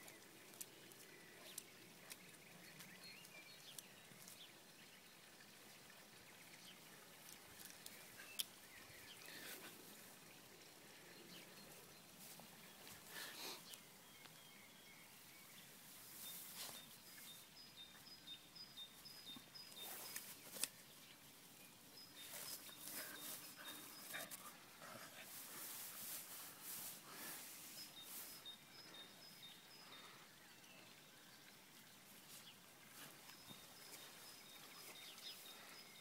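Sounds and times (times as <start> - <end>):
bird chirping: 7.6 - 36.0
dog rustling through grass: 15.7 - 17.4, 22.2 - 24.6, 25.2 - 28.4.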